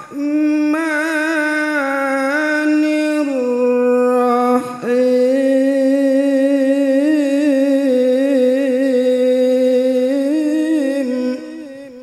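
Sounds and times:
man chanting melodically into a microphone: 0.0s - 12.0s.

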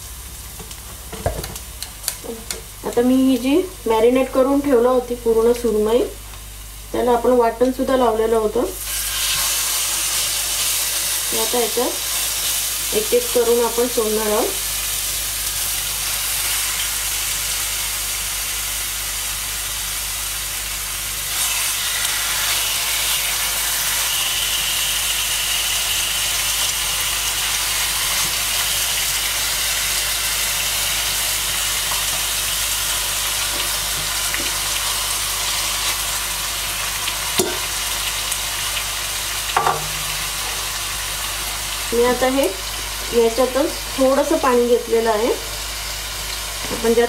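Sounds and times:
hot oil sizzling: 0.0s - 47.0s.

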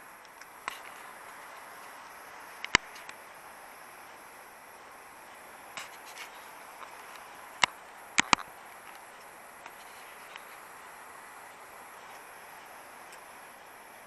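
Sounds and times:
river water rushing over weir: 0.0s - 14.0s
sharp clicks: 2.6s - 3.2s, 5.8s - 10.6s.

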